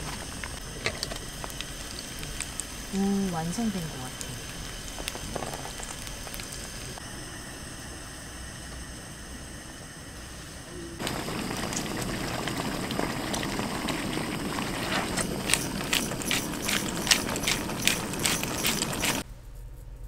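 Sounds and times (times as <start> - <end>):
food sizzling in a hot pan: 0.6 - 7.0, 11.0 - 19.2.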